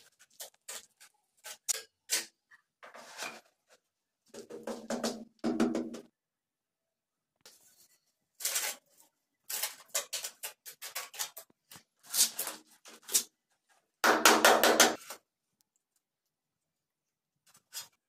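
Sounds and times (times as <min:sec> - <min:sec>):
mortar scraping and patting: 0:00.0 - 0:05.0.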